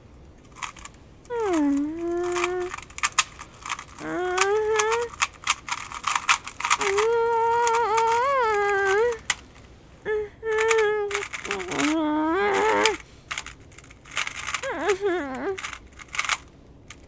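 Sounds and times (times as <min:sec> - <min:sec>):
puzzle cube clicking: 0:00.5 - 0:09.5, 0:10.5 - 0:17.0
woman humming: 0:01.3 - 0:02.9, 0:03.9 - 0:05.2, 0:06.7 - 0:09.3, 0:10.0 - 0:13.0, 0:14.5 - 0:15.8.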